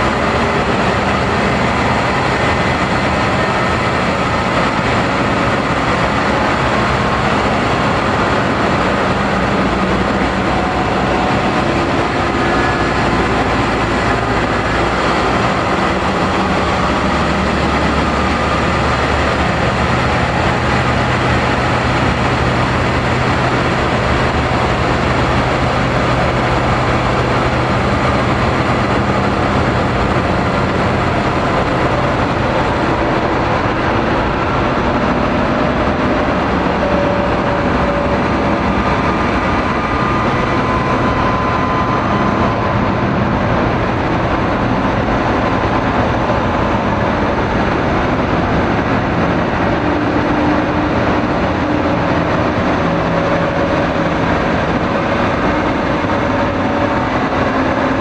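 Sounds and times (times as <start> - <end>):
dense rumbling noise drone: 0.0 - 58.0.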